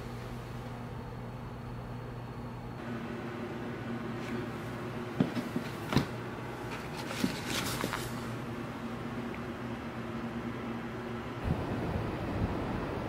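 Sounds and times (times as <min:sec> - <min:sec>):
room hum: 0:00.0 - 0:13.0
books knocking on shelf: 0:05.2 - 0:06.2
paper rustling: 0:05.3 - 0:08.4.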